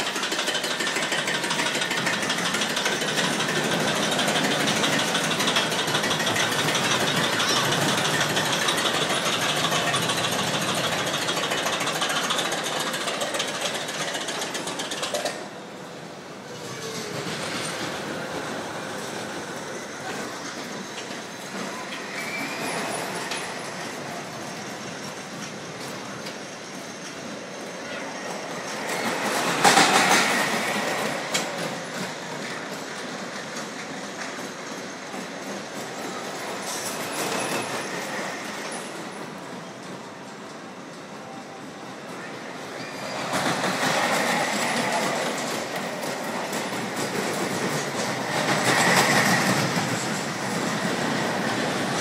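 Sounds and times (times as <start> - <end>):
roller coaster rumbling on track: 0.0 - 52.0
wheel squeal: 4.3 - 14.8, 19.5 - 30.9, 36.6 - 39.2, 42.7 - 45.6.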